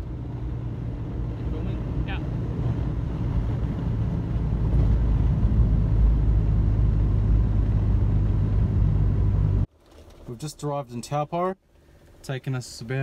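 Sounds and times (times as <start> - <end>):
car engine drone: 0.0 - 9.7
road noise: 0.0 - 10.6.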